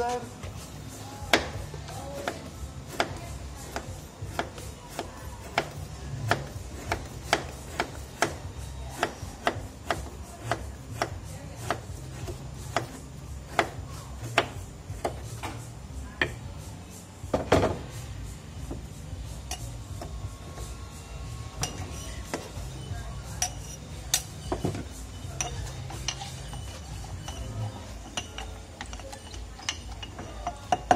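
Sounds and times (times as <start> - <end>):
knife chopping on cutting board: 2.2 - 15.5.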